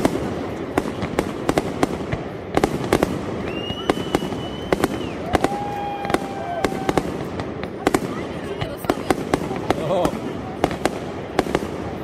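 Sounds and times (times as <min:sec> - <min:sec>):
firework crackle: 0:00.0 - 0:12.0
firework whistles: 0:03.0 - 0:07.3.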